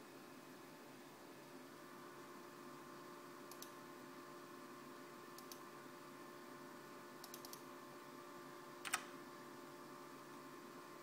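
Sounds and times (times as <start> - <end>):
faint steady hum: 0.0 - 11.0
mouse and keyboard clicks: 7.2 - 7.6.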